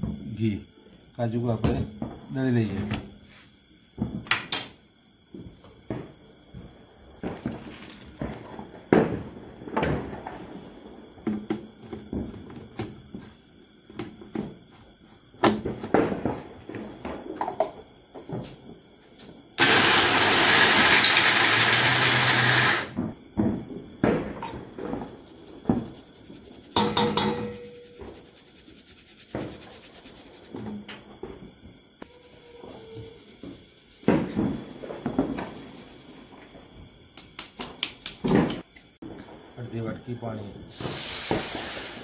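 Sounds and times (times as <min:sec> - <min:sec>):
mixer grinder grinding: 0:19.6 - 0:22.9
steel jar clinking and knocking: 0:26.8 - 0:28.0.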